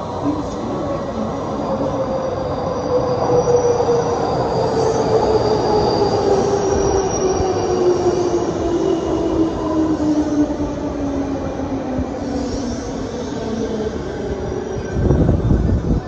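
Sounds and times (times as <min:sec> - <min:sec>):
faint high squeals: 0:01.0 - 0:09.3.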